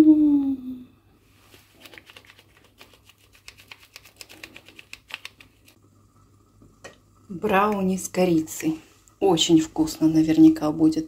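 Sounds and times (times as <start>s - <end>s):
spice sachet shaken over pan: 1.4s - 5.8s.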